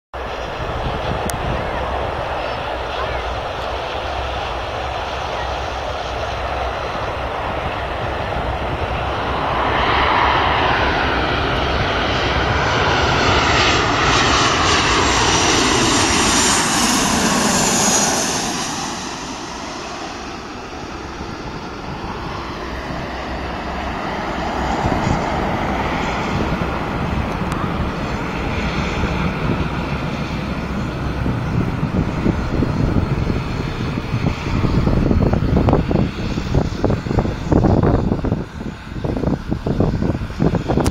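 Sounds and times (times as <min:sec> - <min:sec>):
jet engines passing overhead: 0:00.2 - 0:40.9.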